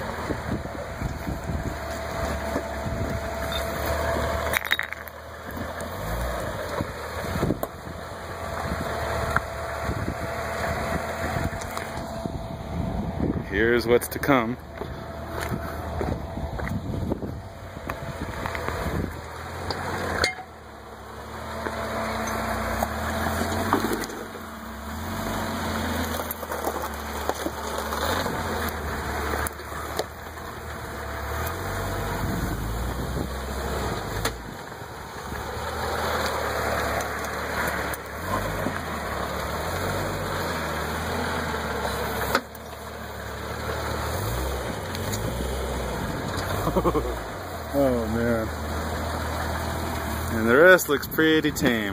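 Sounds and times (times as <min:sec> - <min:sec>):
engine running at low revs: 0:00.0 - 0:51.9.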